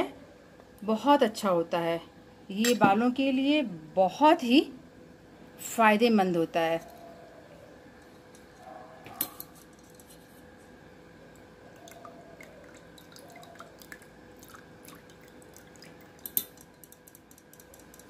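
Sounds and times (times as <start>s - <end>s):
oil dripping into pot: 11.3s - 18.0s.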